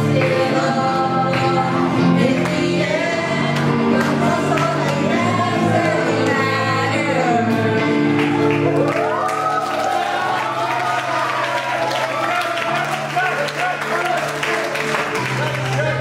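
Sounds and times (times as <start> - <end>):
group singing: 0.0 - 8.8
live band with electric guitar: 0.0 - 9.2.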